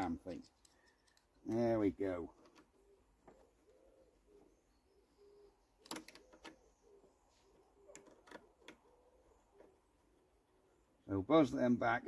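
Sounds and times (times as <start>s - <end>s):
bird cooing: 2.4s - 10.8s
socket metallic clicks: 5.8s - 6.7s.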